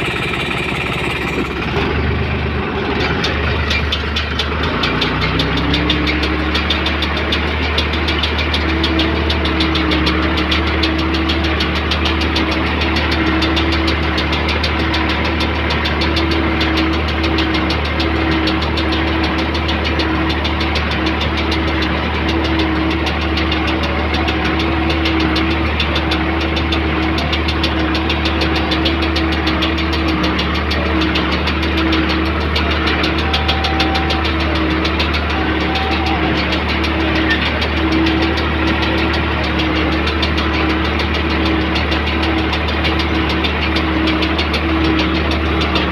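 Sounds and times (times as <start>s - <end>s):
square baler working: 0.0s - 45.9s
tractor diesel engine running: 0.0s - 45.9s.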